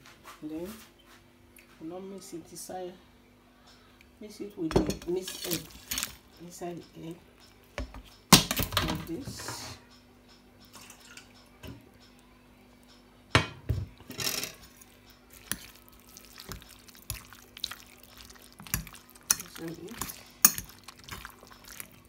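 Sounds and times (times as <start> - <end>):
spoon clinking and scraping bowl: 4.9 - 6.2, 14.0 - 22.0.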